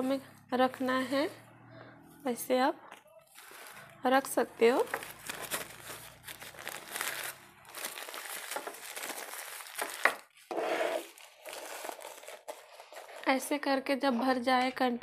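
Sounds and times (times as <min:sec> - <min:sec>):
tissue paper crinkling: 0:03.2 - 0:04.0, 0:04.7 - 0:13.3.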